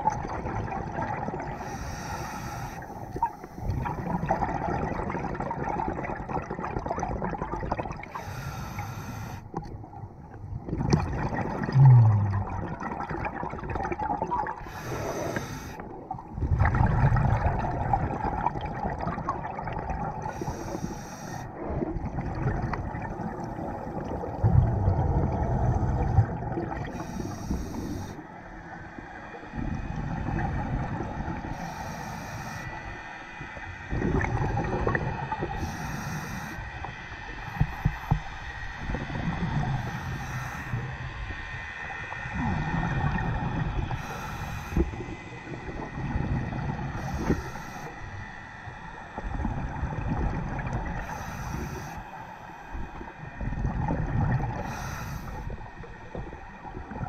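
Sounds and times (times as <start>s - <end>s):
exhaled bubbles rushing: 0.0s - 1.6s, 3.6s - 8.1s, 10.5s - 15.2s, 15.8s - 20.3s, 21.6s - 27.2s, 33.9s - 35.6s, 49.3s - 51.1s, 53.4s - 54.6s
regulator inhalation hiss: 1.6s - 3.6s, 8.1s - 9.5s, 14.6s - 15.9s, 20.3s - 21.5s, 26.9s - 28.3s, 31.5s - 33.0s, 35.5s - 36.8s, 39.8s - 40.9s, 43.9s - 45.3s, 47.0s - 48.2s, 51.0s - 52.6s, 54.6s - 55.7s.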